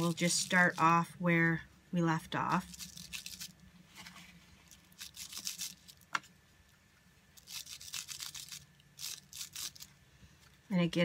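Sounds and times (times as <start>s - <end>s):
brush scratching on bubble wrap: 0.0s - 1.1s.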